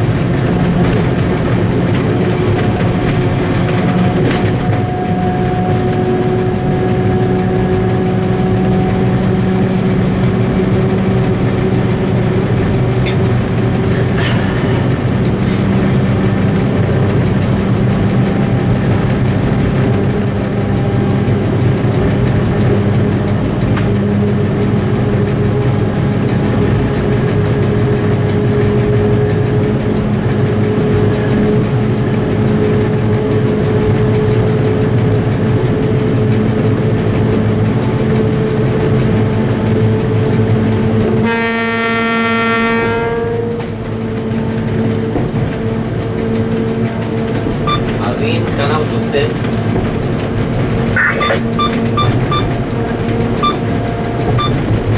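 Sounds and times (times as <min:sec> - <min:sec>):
locomotive diesel engine drone: 0:00.0 - 0:54.9.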